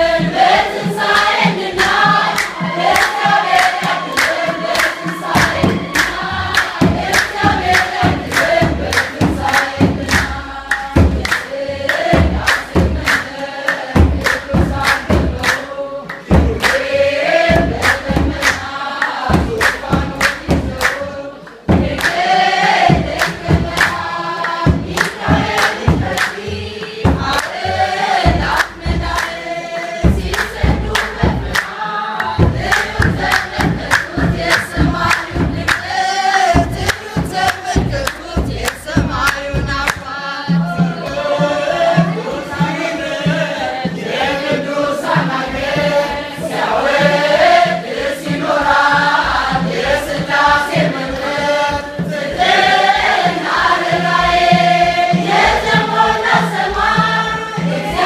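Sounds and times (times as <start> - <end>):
congregation singing a hymn: 0.0 - 58.0
deep drum beat: 0.0 - 58.0
hand clapping: 0.7 - 27.6, 28.2 - 29.4, 30.0 - 40.2.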